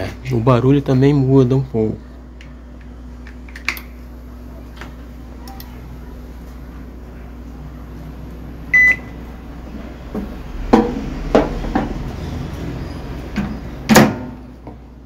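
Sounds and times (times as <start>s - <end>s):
microwave oven humming: 0.0s - 15.0s
control panel beep: 8.7s - 9.1s.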